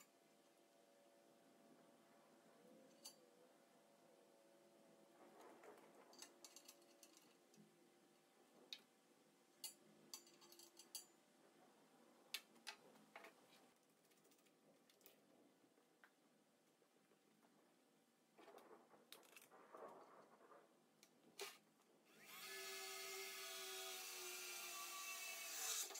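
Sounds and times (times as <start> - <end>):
tools clicking on metal frame: 2.9 - 3.2, 6.1 - 7.6, 9.6 - 11.1.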